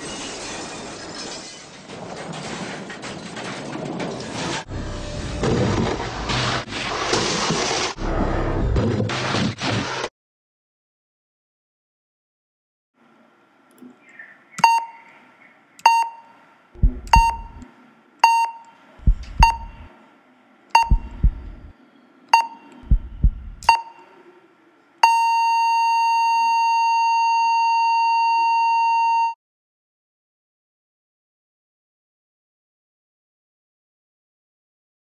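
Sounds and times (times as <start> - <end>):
heart monitor beeps: 14.6 - 15.0, 15.8 - 17.6, 18.2 - 19.9, 20.8 - 21.7, 22.3 - 24.0, 25.0 - 29.4
deep heartbeat thuds: 16.8 - 17.6, 19.0 - 19.9, 20.8 - 21.7, 22.8 - 23.7
long flatline tone: 25.0 - 29.4.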